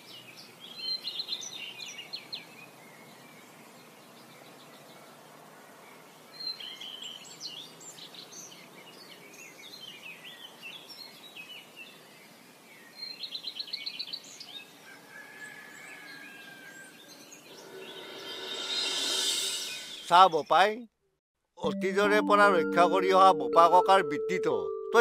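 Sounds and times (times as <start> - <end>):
high bird chirps: 17.3 - 20.2.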